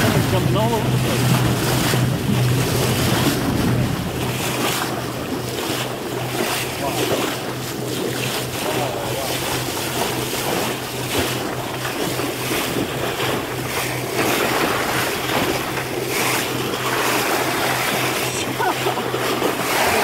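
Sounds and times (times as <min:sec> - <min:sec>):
wind on microphone: 0:00.0 - 0:06.5
boat motor humming: 0:00.0 - 0:20.0
water rushing along hull: 0:00.0 - 0:20.0.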